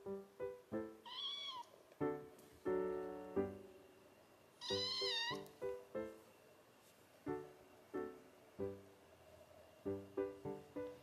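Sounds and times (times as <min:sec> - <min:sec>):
soft piano music: 0:00.0 - 0:11.0
kitten mewing: 0:04.6 - 0:05.5.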